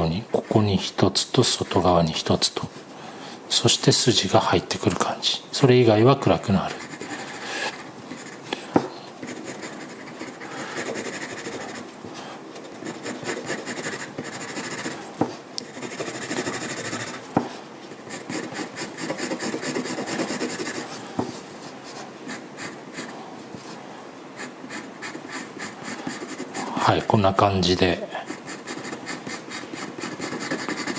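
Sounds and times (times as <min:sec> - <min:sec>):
pencil scratching on paper: 0:06.6 - 0:08.4, 0:09.2 - 0:11.9, 0:12.7 - 0:15.0, 0:15.6 - 0:17.2, 0:18.0 - 0:21.0, 0:21.6 - 0:23.2, 0:24.4 - 0:27.0, 0:27.7 - 0:30.9.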